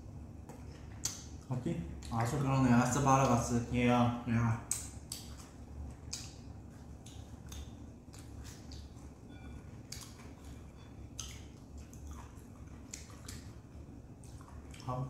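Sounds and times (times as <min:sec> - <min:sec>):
low room hum: 0:00.0 - 0:15.0
chewing: 0:04.7 - 0:15.0.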